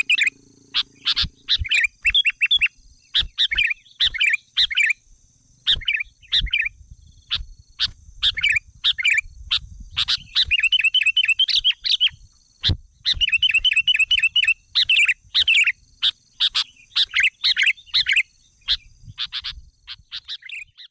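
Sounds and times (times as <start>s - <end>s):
faint high whine: 0.0s - 4.0s
bird trills: 0.0s - 5.0s, 5.6s - 20.9s
small birds chirping: 0.0s - 20.9s.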